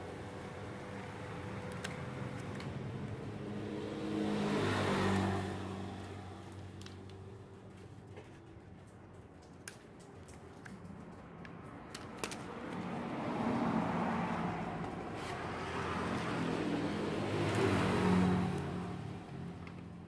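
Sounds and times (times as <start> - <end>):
vehicle engine passing by: 2.8 - 7.1, 12.5 - 19.9.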